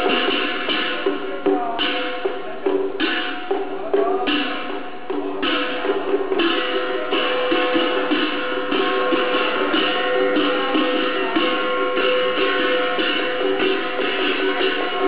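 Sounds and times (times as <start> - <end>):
wood-block strikes: 0.0 - 15.0.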